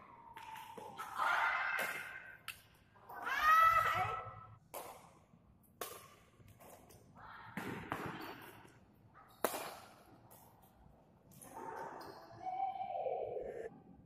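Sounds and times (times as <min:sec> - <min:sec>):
rackets striking shuttlecock: 0:07.6 - 0:10.5.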